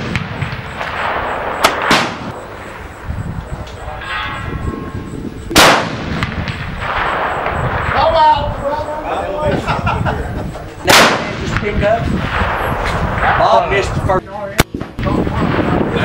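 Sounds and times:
rifle shots with echo: 0:00.0 - 0:03.0, 0:05.5 - 0:08.6, 0:10.8 - 0:13.9.

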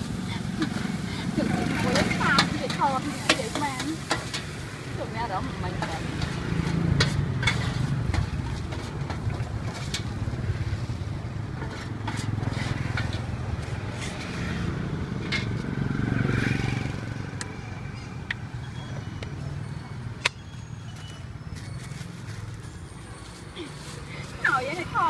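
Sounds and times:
low rumble of traffic: 0:00.0 - 0:25.0
metal spatula scraping wok: 0:00.4 - 0:15.7.

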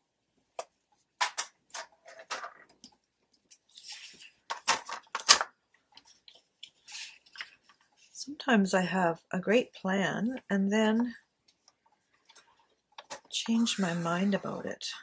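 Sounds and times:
paper rustling: 0:03.5 - 0:08.1.

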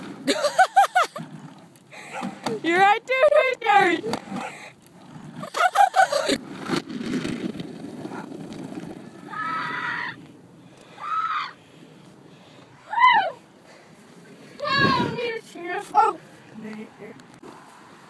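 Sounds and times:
cart rolling over grass: 0:00.0 - 0:10.5
children shouting: 0:09.3 - 0:10.2.

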